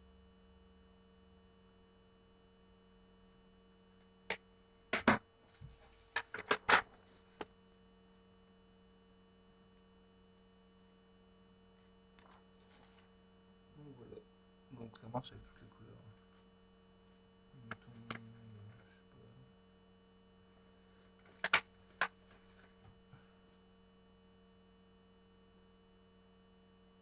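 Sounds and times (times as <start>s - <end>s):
low electrical hum: 0.0s - 27.0s
sharp clicks and knocks: 4.3s - 5.2s.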